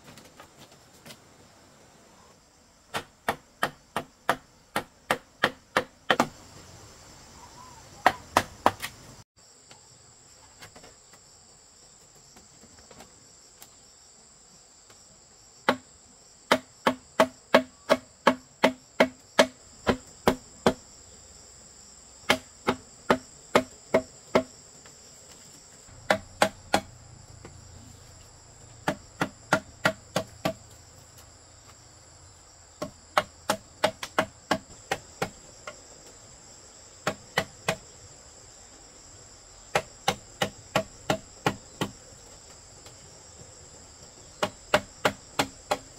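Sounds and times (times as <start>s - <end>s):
insects chirring: 0.0s - 45.9s
tool knocking on bamboo: 2.9s - 6.4s, 16.5s - 20.8s, 22.3s - 24.5s, 25.9s - 27.6s, 28.8s - 30.7s, 32.8s - 35.8s, 39.7s - 42.0s, 44.4s - 45.9s.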